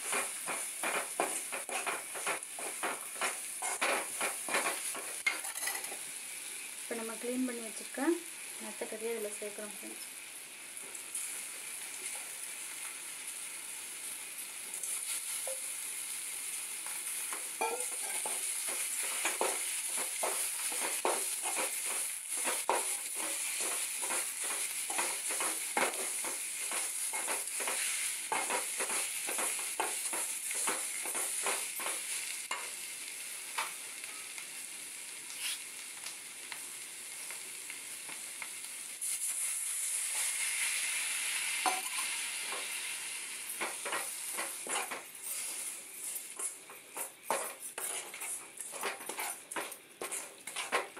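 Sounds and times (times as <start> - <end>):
meat sizzling in a pan: 0.0 - 50.9
steel spatula scraping a pan: 17.6 - 26.1, 43.8 - 50.9.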